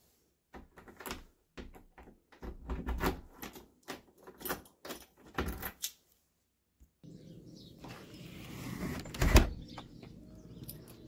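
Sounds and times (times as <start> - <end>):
key turning in door lock: 0.7 - 6.0, 9.1 - 11.0.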